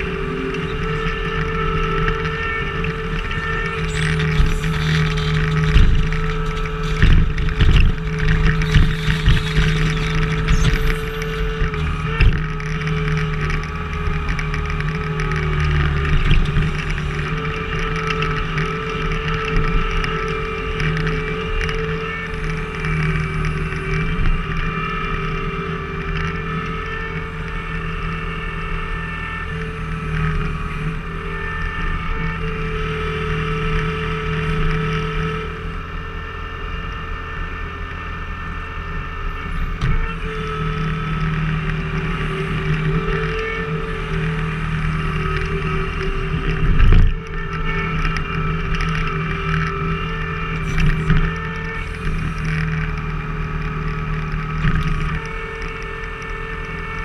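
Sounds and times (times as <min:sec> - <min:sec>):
splitter driving through firewood: 0:00.0 - 0:30.8
engine running under load: 0:00.0 - 0:57.0.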